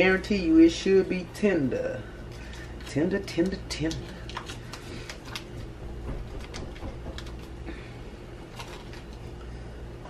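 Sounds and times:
steady low hum: 0.0s - 10.0s
wrapper crinkling: 3.9s - 5.7s, 8.5s - 9.3s.

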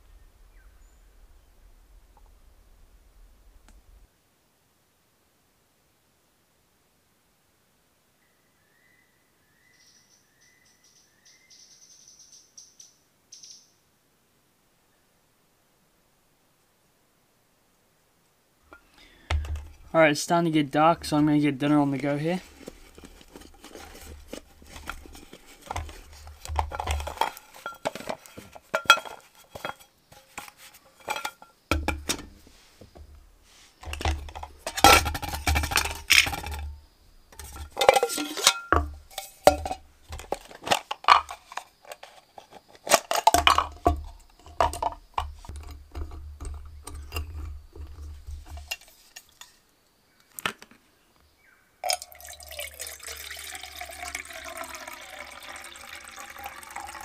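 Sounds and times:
small metal items knocking: 18.7s - 19.9s, 22.4s - 33.2s, 33.8s - 49.6s
handling noise: 18.7s - 49.6s
metal mug and lid clinking: 18.8s - 19.9s, 22.5s - 32.4s, 33.8s - 36.7s, 37.3s - 49.5s, 51.8s - 57.0s.

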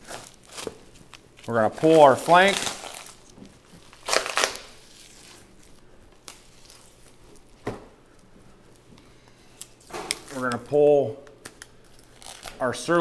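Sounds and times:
meat tearing: 0.0s - 7.5s.

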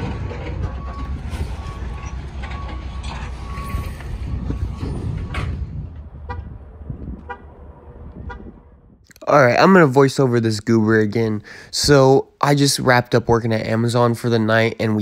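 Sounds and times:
trucks idling: 0.0s - 8.7s
horn toots: 6.2s - 8.9s.

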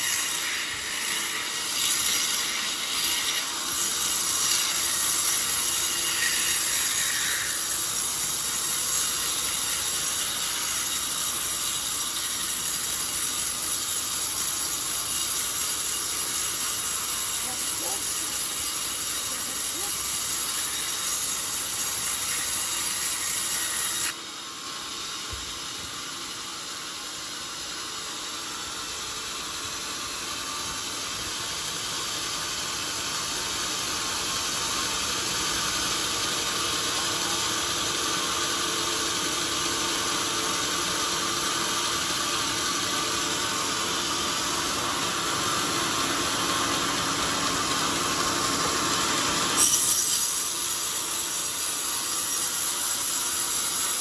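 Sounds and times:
band saw ripping through log: 0.0s - 24.2s, 44.2s - 54.0s.

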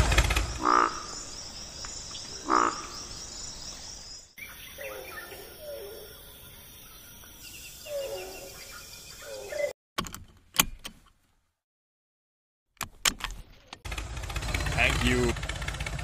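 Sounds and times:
frogs croaking: 0.4s - 9.7s.

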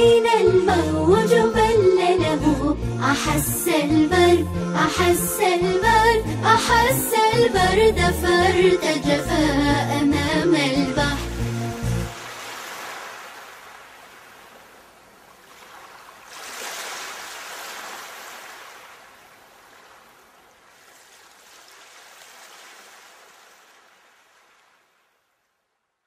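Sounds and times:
sea waves washing in: 11.0s - 25.2s.

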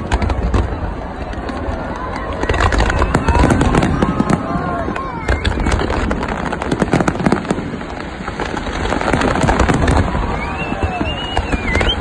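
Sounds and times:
deep fireworks booms: 0.0s - 12.0s
fireworks cracks and pops: 0.0s - 12.0s
high rising whistle: 10.1s - 12.0s.

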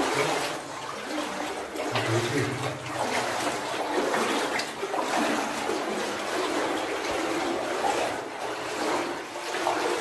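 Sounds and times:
water splashing and trickling: 0.0s - 10.0s.

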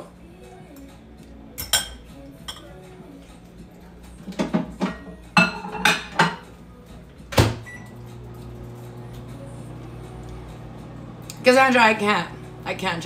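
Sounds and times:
microwave humming: 7.3s - 13.0s.

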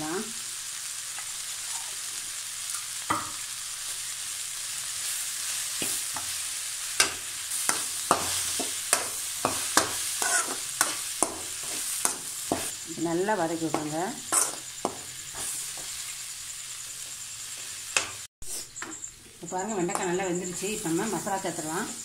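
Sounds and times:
okra sizzling in oil: 0.0s - 22.0s
metal spatula scraping a pan: 7.0s - 12.8s, 13.8s - 16.1s.

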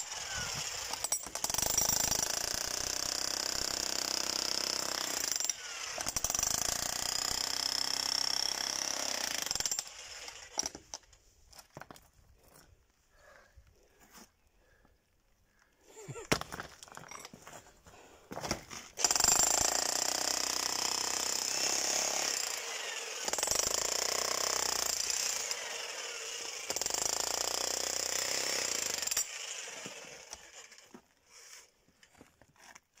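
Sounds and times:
demolition hammer chiselling concrete: 0.0s - 10.0s, 19.0s - 30.6s.

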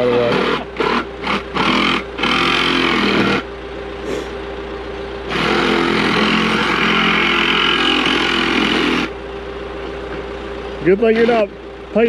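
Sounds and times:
saw cutting plastic pipe: 0.0s - 3.4s, 5.3s - 9.2s.

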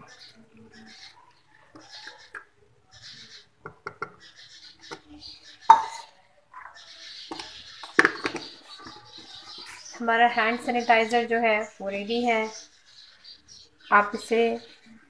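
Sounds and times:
cup tapping plastic bottle: 3.6s - 4.2s, 5.7s - 6.0s, 7.3s - 9.2s.

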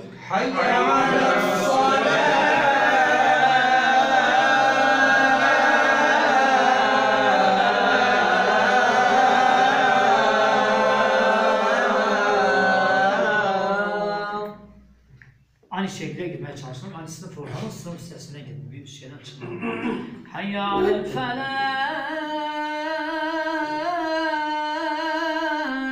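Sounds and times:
man chanting call to prayer: 20.4s - 25.9s.

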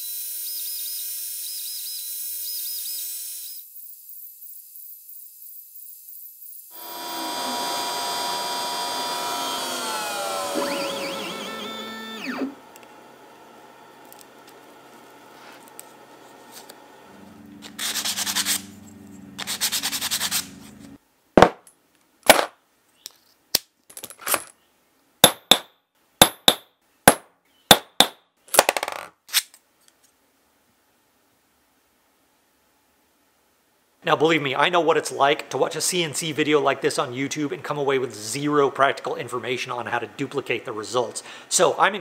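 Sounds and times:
noisy whir: 6.8s - 21.0s.

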